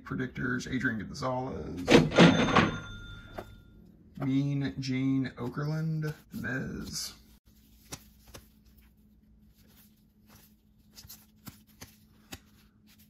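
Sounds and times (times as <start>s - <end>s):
trading cards flipped by hand: 6.0s - 13.0s.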